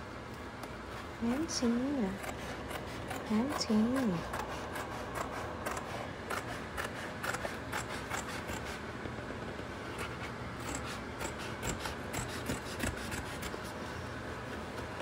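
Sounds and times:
kitten scratching in cat litter: 9.8s - 13.9s.

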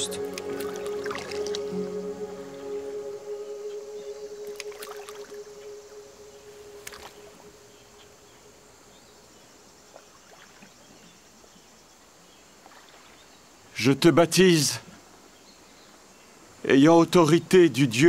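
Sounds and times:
water splashing around people wading: 0.0s - 1.9s, 4.4s - 5.4s, 9.7s - 11.2s
held note of film music: 0.0s - 8.7s
faint river ambience: 0.0s - 18.0s.

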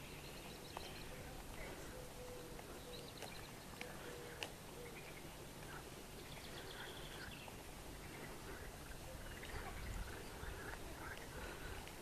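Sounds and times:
birds chirping: 0.0s - 12.0s
low outdoor rumble: 0.0s - 12.0s.

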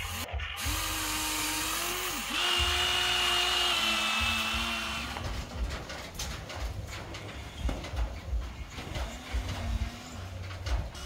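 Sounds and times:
toy electric motor whining: 0.0s - 5.2s.

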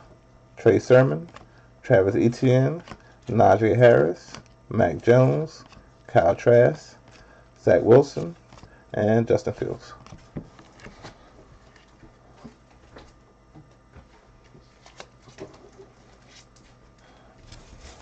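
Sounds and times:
room hum: 0.0s - 18.0s
soft clicks of cards handled: 1.2s - 1.5s, 2.7s - 3.4s, 4.3s - 4.6s, 5.3s - 5.9s, 8.2s - 8.8s, 14.4s - 15.6s.

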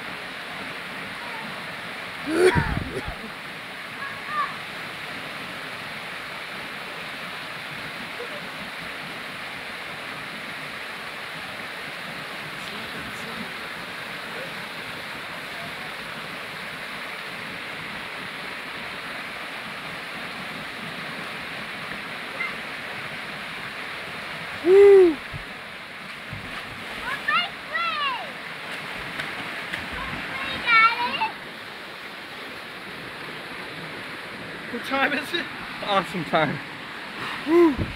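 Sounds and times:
waterfall rushing into pool: 0.0s - 37.9s
person yelling: 2.3s - 3.1s, 24.6s - 25.2s, 37.5s - 37.9s.

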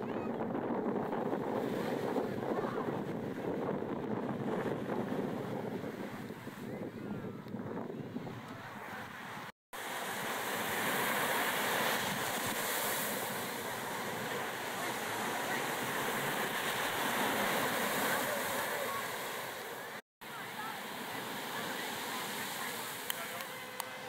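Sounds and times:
ocean surf: 0.0s - 6.9s, 8.4s - 24.0s
wind buffeting microphone: 0.0s - 9.5s.

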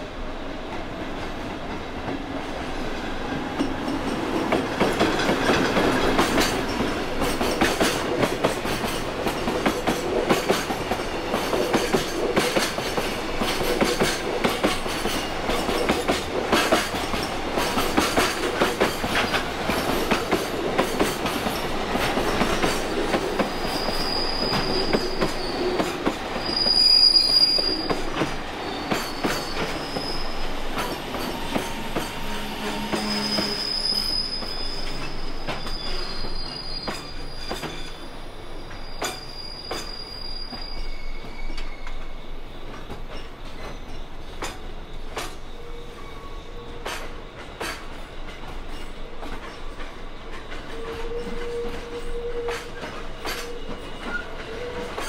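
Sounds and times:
high wheel squeal: 23.6s - 42.5s
freight train wagons rattling: 46.6s - 55.0s.

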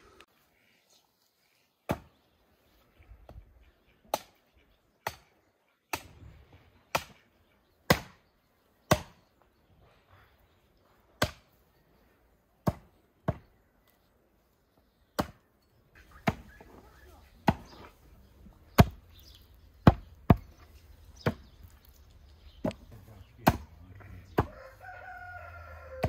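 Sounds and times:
hatchet chopping meat on wood: 8.9s - 9.2s, 18.7s - 19.0s, 19.8s - 20.6s, 23.4s - 23.6s.

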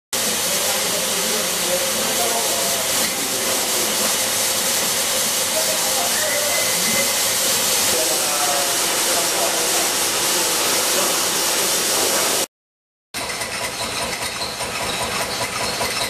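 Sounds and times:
printing machine hissing: 0.2s - 12.5s
faint held tone: 6.1s - 7.2s.

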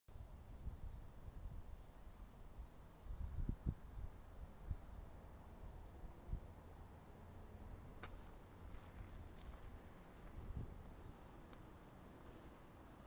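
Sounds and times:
wind rumble on microphone: 0.1s - 6.8s, 7.4s - 13.0s
faint bird chirps: 0.6s - 6.4s.

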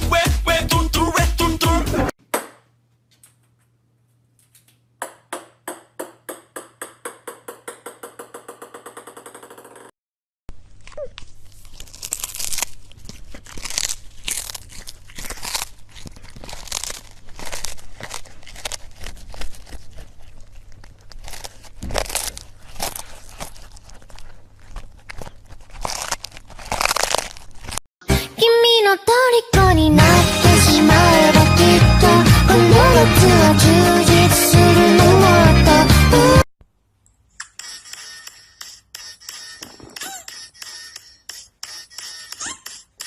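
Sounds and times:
small ball bouncing on hard floor: 5.0s - 9.9s
cat chewing fish: 10.6s - 27.8s.

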